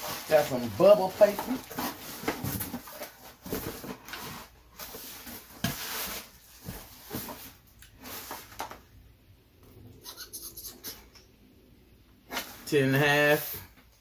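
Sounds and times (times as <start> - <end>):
cardboard packaging rustling: 0.0 - 8.8.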